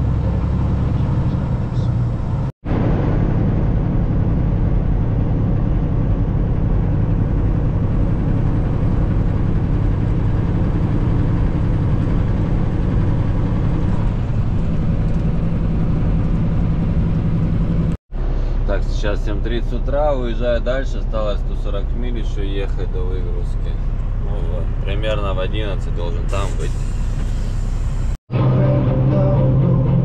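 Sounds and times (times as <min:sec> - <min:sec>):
diesel truck engine running: 0:00.0 - 0:30.0
road noise: 0:00.0 - 0:30.0.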